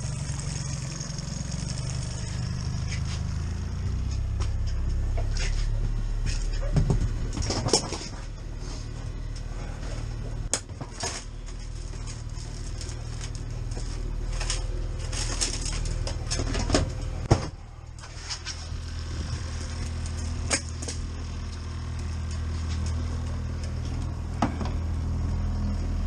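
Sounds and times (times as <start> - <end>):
boat engine humming: 0.0 - 26.0
clatter and knocks on board: 6.2 - 8.2.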